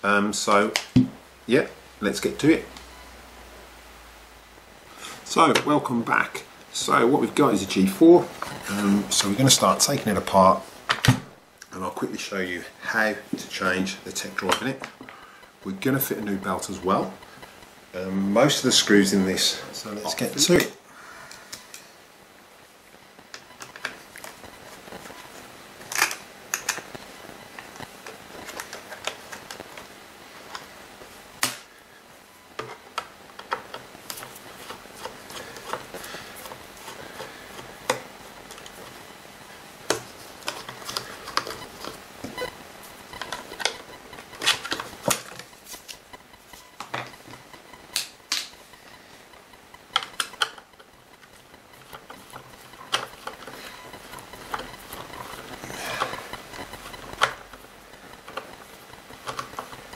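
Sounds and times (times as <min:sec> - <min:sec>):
plastic parts clicking and knocking: 0:25.9 - 0:26.9, 0:39.9 - 0:42.4, 0:49.5 - 0:59.9.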